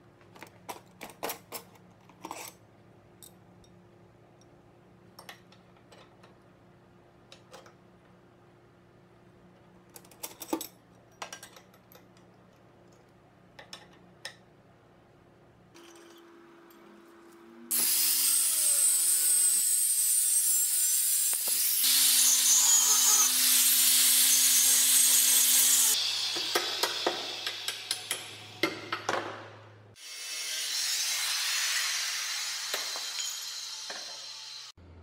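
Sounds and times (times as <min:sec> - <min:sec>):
angle grinder cutting steel: 0:17.7 - 0:28.6, 0:30.0 - 0:34.8.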